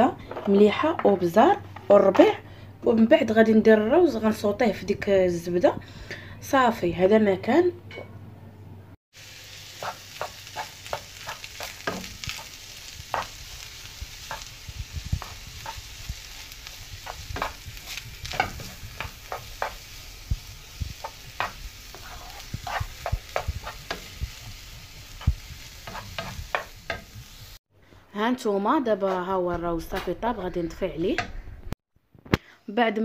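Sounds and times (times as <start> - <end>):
wooden spoon scraping pan: 0.1 - 2.4, 9.7 - 27.4
faint sizzle: 9.2 - 27.6.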